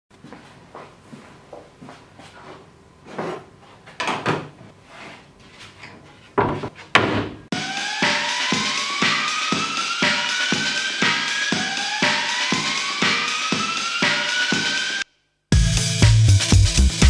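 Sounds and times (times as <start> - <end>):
wood scraping and knocking: 5.6 - 7.4
music with a beat: 7.5 - 17.0.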